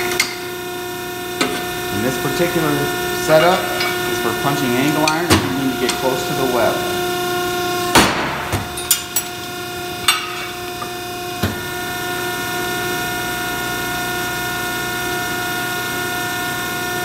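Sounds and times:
hydraulic pump motor hum: 0.0s - 17.0s
steel knocking against metal: 10.0s - 10.9s.

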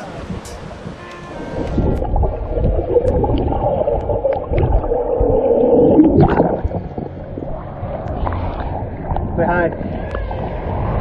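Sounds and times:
muffled underwater surf rush: 0.0s - 11.0s
bubble clicks: 1.7s - 7.5s.

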